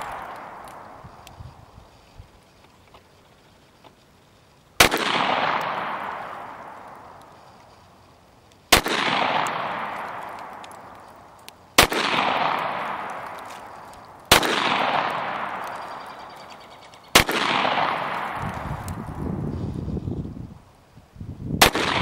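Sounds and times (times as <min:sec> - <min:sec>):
pistol shots echoing: 0:00.0 - 0:01.0, 0:04.8 - 0:07.2, 0:08.7 - 0:11.0, 0:11.7 - 0:18.6, 0:21.6 - 0:22.0.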